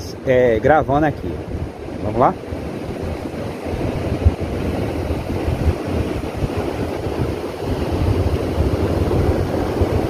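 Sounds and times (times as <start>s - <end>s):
sea water washing: 0.0s - 10.0s
wind buffeting microphone: 0.0s - 10.0s.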